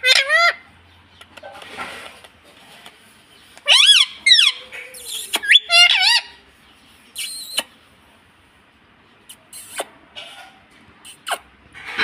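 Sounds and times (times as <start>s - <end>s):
parakeet squawk: 0.0s - 0.7s, 3.6s - 6.4s
parakeets chirping and warbling: 0.0s - 1.2s, 3.4s - 6.4s.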